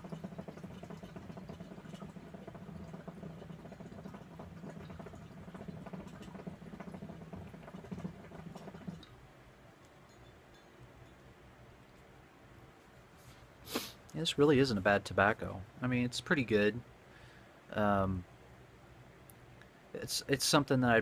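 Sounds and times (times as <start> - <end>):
hookah water bubbling: 0.0 - 11.3.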